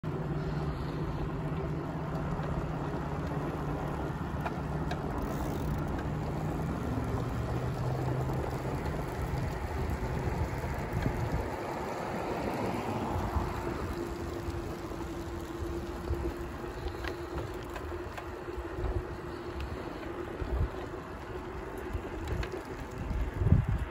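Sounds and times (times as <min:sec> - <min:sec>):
bicycle tyres rolling: 0:00.0 - 0:23.9
low hum: 0:00.0 - 0:23.9
faint ticks: 0:04.4 - 0:11.5, 0:12.6 - 0:23.8
wind across microphone: 0:06.6 - 0:17.6, 0:18.6 - 0:23.9.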